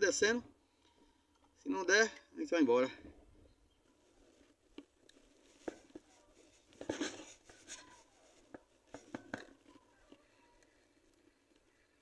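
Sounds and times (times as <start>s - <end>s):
rustling: 3.1s - 12.0s.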